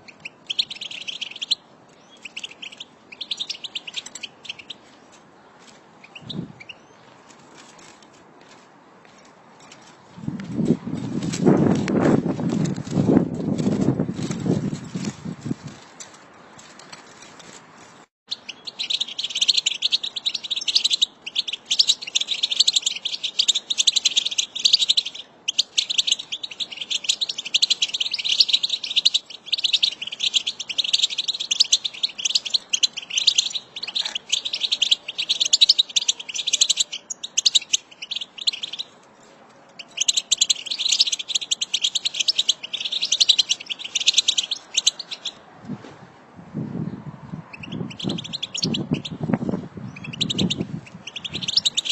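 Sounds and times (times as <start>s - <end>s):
goldfinches twittering: 18.3s - 38.9s, 39.8s - 45.4s, 47.5s - 49.2s, 49.9s - 51.9s.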